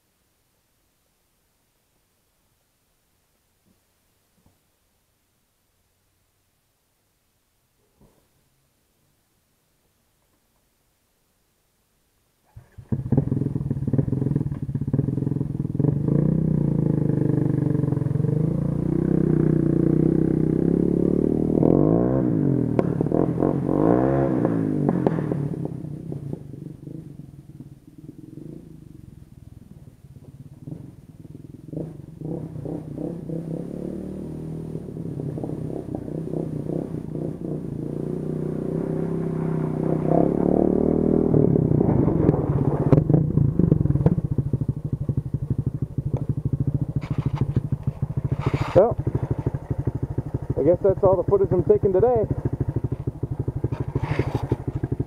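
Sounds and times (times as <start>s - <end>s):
quad bike engine revving: 12.5s - 29.0s, 30.2s - 55.0s.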